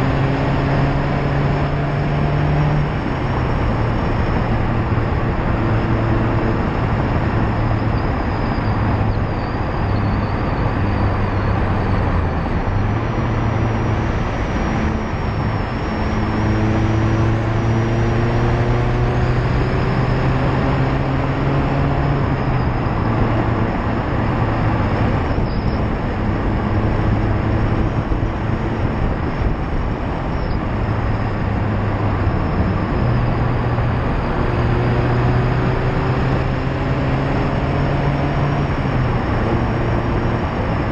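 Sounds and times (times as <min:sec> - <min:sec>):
car engine and exhaust accelerating: 0:00.0 - 0:40.9
tyre and road noise: 0:00.0 - 0:40.9.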